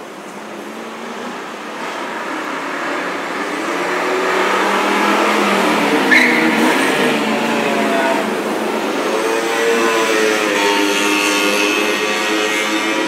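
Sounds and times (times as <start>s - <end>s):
cars speeding past: 0.0s - 13.0s
engines revving: 0.0s - 13.0s.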